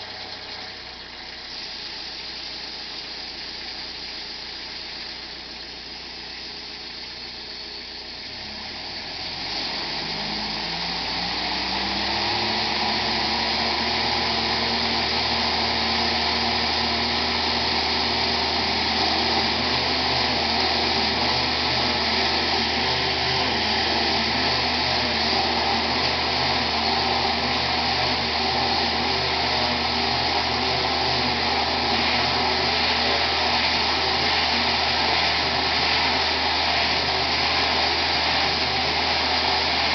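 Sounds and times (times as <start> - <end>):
engine revving and running: 0.0 - 39.9
water spray rushing: 9.5 - 39.9.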